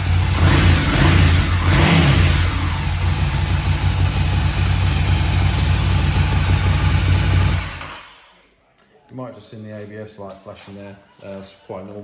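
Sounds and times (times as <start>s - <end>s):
motorcycle engine idling: 0.0s - 7.9s.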